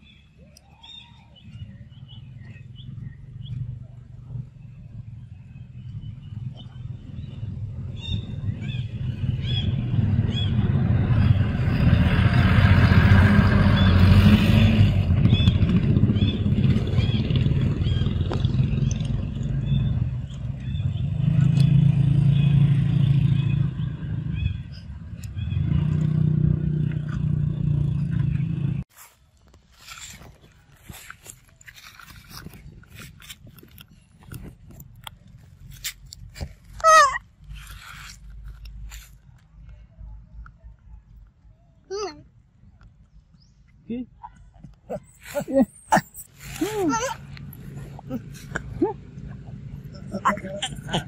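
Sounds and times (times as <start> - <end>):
vehicle engine running: 1.9 - 28.9.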